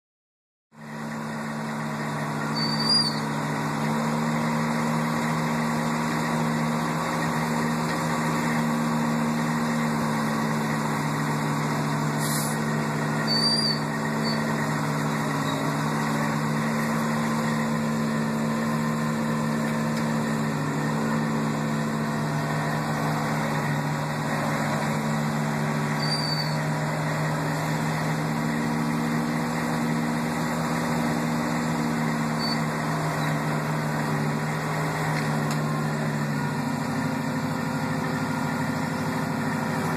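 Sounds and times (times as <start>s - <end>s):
diesel engine droning: 0.8s - 39.9s
high chirps: 26.0s - 26.6s.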